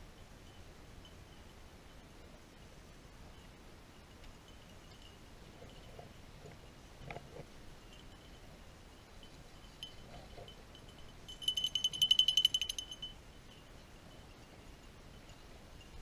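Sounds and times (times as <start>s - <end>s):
collar bell jingling: 7.8s - 16.0s.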